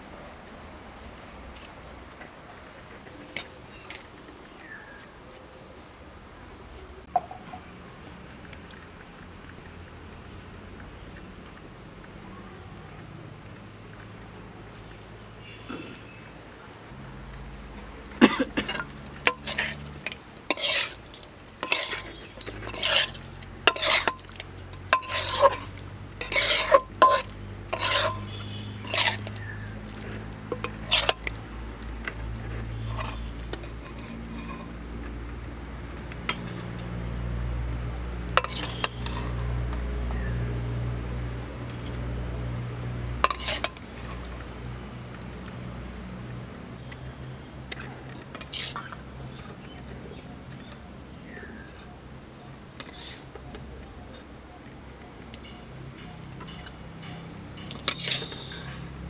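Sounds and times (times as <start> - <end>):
metal spatula scraping a pan: 18.6 - 34.8, 38.4 - 39.8, 43.2 - 44.4, 48.4 - 49.0, 52.8 - 53.2, 56.4 - 59.0
spoon clinking: 21.6 - 29.2.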